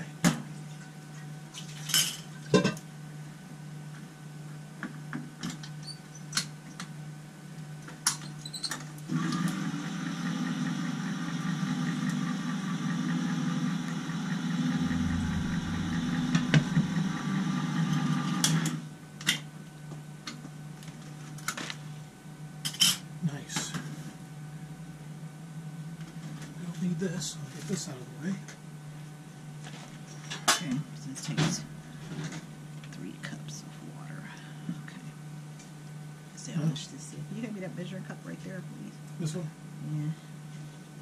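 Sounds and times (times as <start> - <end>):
electric can opener running: 8.8 - 18.9.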